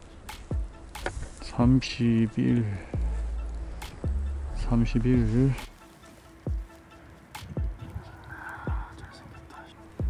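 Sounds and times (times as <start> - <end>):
low thuds: 2.9 - 5.8, 7.4 - 8.0.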